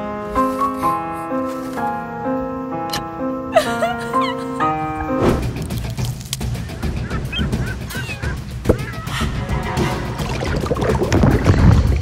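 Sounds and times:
piano music: 0.0 - 8.6, 9.3 - 11.5.

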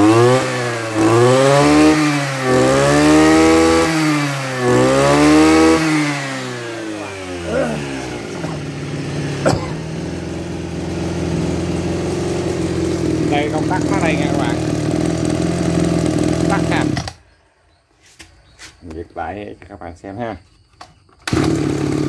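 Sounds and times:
brush cutter engine idling: 0.0 - 17.2, 21.2 - 22.0
brush cutter engine revving: 0.0 - 17.2, 21.2 - 22.0.

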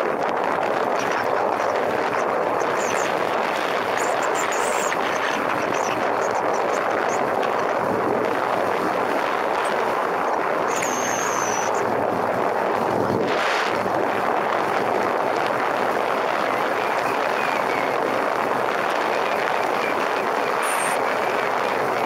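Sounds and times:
wind rush on microphone: 0.0 - 22.0
high whistle: 10.7 - 11.8.

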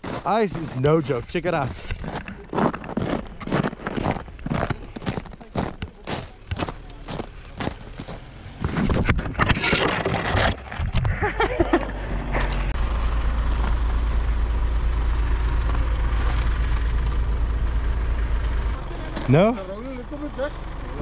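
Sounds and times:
footsteps on icy snow: 0.0 - 8.8, 13.2 - 19.4
diesel engine idling: 1.3 - 8.6, 11.8 - 21.0.

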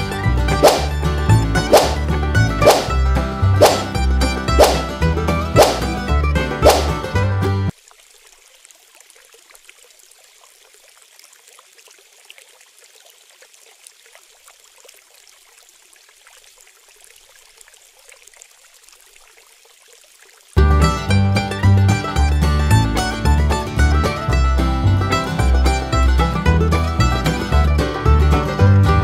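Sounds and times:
background music: 0.0 - 7.7, 20.6 - 29.0
water trickling: 7.7 - 20.6.

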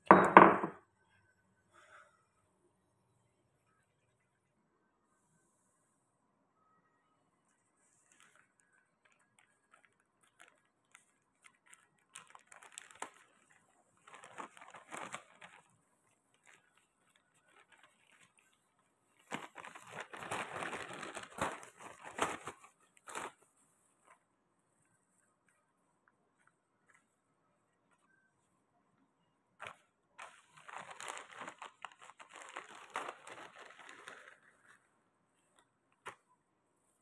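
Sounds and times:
plastic bag crinkling: 7.8 - 24.2, 29.6 - 36.2.

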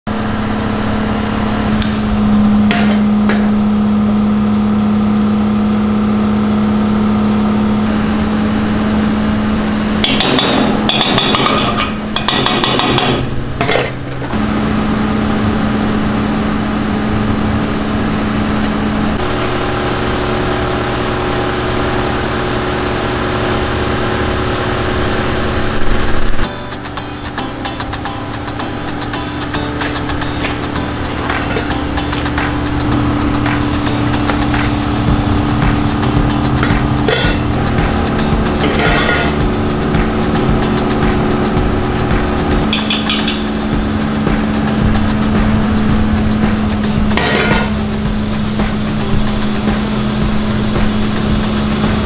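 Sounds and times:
motor hum: 0.1 - 52.0
scratchy clattering noise: 29.5 - 50.0.

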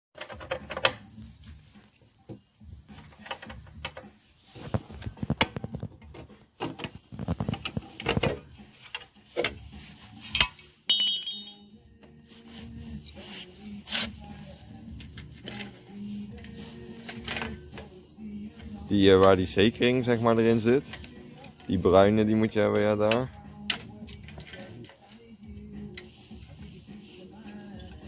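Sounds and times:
metal clinks and knocks: 10.4 - 11.7
high ringing tone: 10.9 - 11.8.

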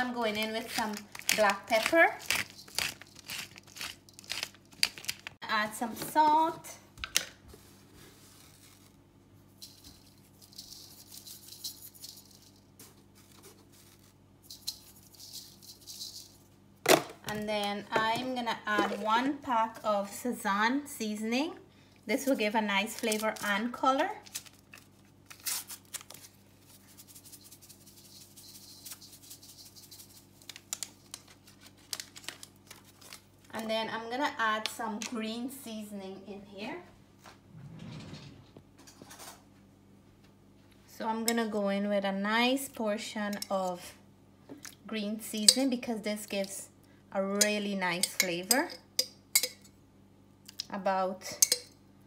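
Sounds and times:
salt granules rattling into bowl: 0.0 - 5.4, 9.5 - 12.7, 13.7 - 16.4, 26.9 - 31.2
faint steady hum: 0.0 - 52.0
powder shaken from packet: 26.6 - 31.8.

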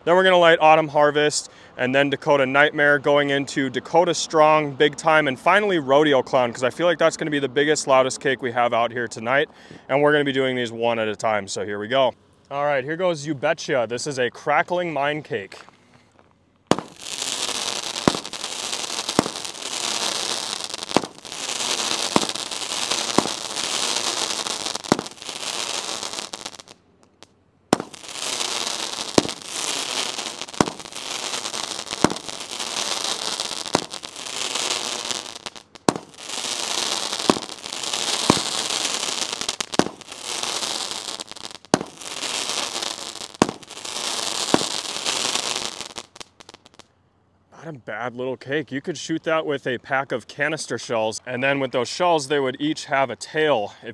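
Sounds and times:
firework launch pops: 16.7 - 46.8
firework crackling: 16.7 - 46.9.

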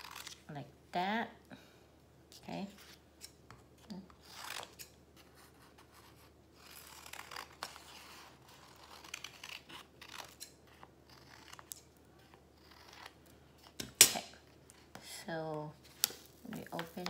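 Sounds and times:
scissors snipping paper: 6.6 - 14.2.

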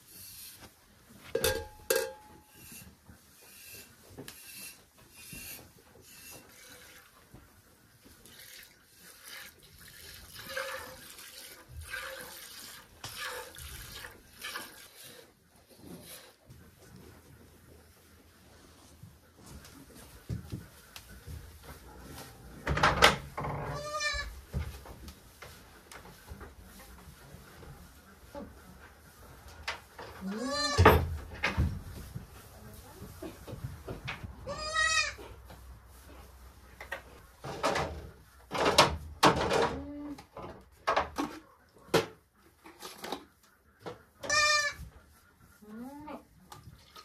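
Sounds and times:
goat bleating: 23.7 - 24.3, 30.2 - 30.9, 34.4 - 35.3, 44.2 - 44.8
rustling in straw: 31.7 - 33.9.

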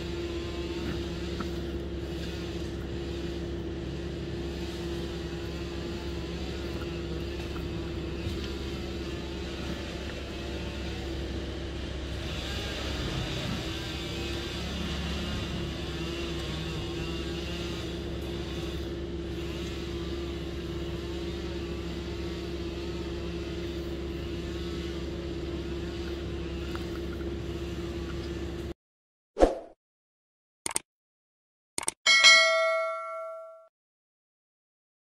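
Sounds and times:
wood chipper engine humming: 0.0 - 28.7
loud ding: 32.1 - 33.7.

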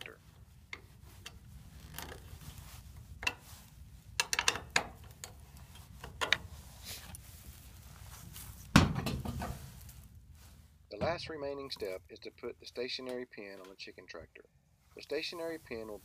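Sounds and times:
wrench clicking on bolt: 4.2 - 5.4
heavy wooden thump: 8.7 - 9.6.

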